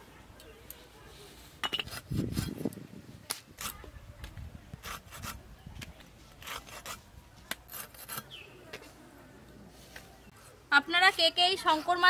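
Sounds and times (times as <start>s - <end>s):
blade scraping cuts through flesh: 6.4s - 7.0s.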